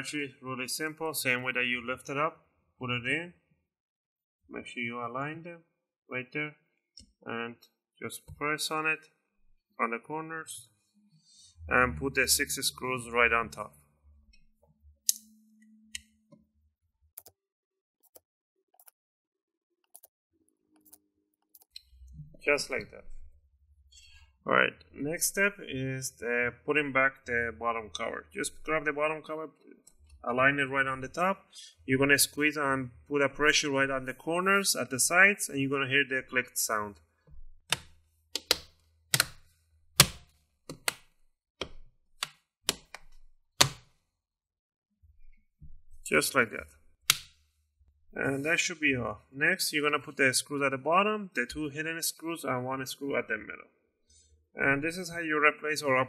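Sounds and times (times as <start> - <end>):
plastic clips clicking into place: 37.7 - 39.4.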